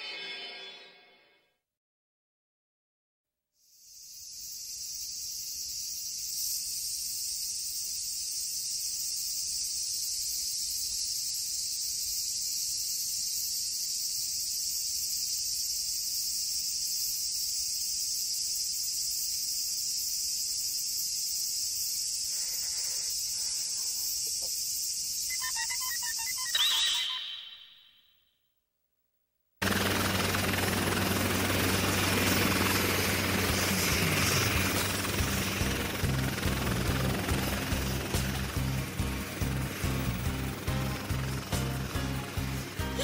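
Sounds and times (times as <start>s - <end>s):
cicadas shrilling: 3.6s - 27.9s, 29.7s - 43.0s
electronic beeps: 25.2s - 28.0s.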